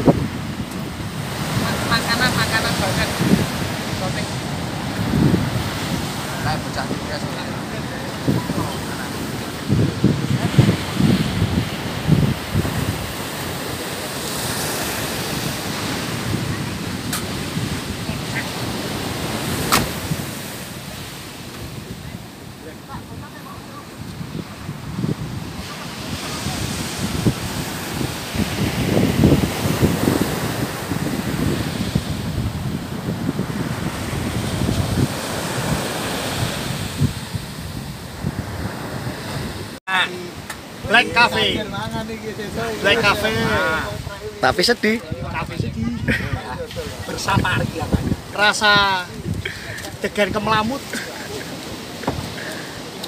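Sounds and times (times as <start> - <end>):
surf rushing: 0.0 - 53.0
wind: 0.0 - 53.0.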